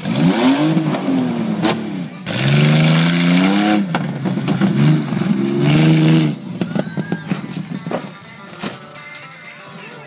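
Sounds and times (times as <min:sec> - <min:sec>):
engine revving hard: 0:00.0 - 0:03.9, 0:04.7 - 0:06.4.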